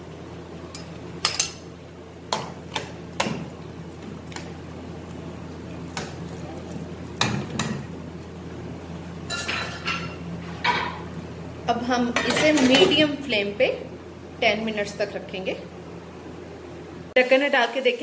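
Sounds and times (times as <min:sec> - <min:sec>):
steady low hum: 0:00.0 - 0:17.2.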